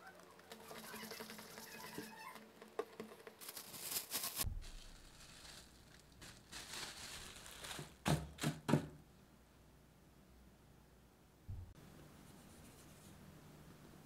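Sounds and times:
plastic cling wrap crinkling: 3.0 - 8.4.

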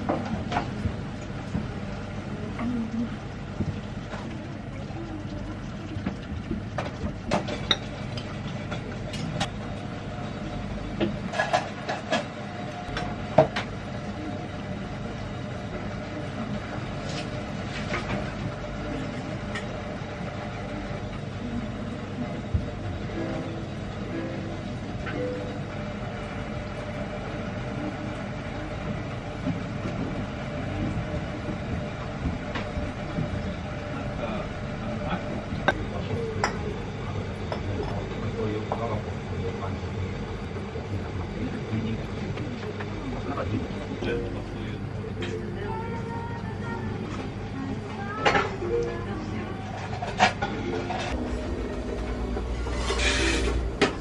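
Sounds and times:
low room hum: 0.0 - 54.0
low rumble: 51.1 - 54.0.

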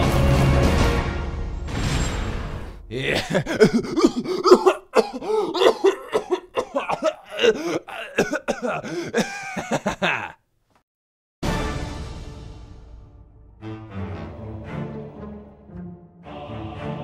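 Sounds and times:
man coughing and spluttering: 2.9 - 10.4.

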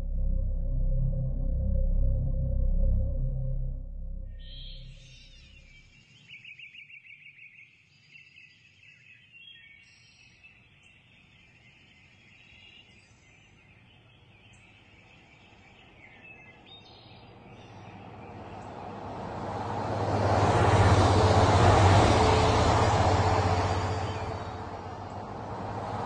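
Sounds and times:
birdsong trills and chirps: 4.3 - 18.9
broad rushing noise: 17.4 - 26.0.

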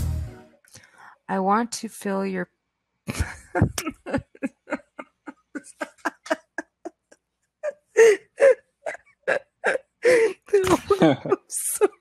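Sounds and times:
woman laughing hard: 3.1 - 8.6, 9.3 - 11.9.

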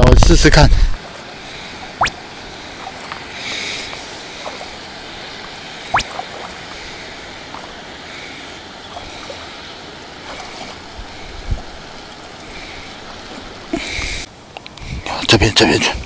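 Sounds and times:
water running in a ditch: 0.0 - 16.0
rustle: 0.7 - 16.0.

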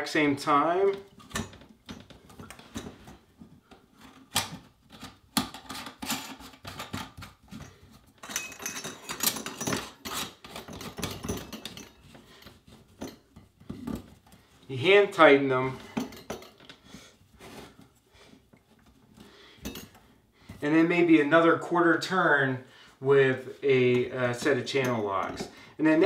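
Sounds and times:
metal pipe parts clicking: 0.8 - 14.6, 15.7 - 16.8, 18.8 - 20.1.

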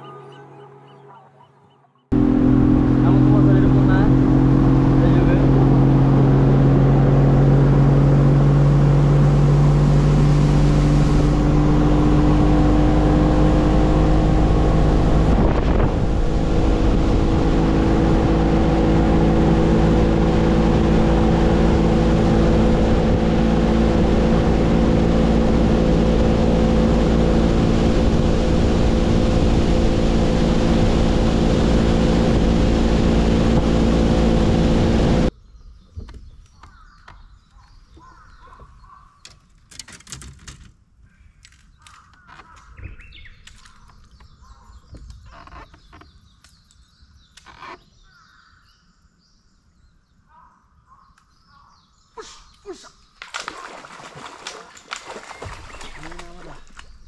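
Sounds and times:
outboard motor running: 0.0 - 35.3, 53.4 - 57.0.

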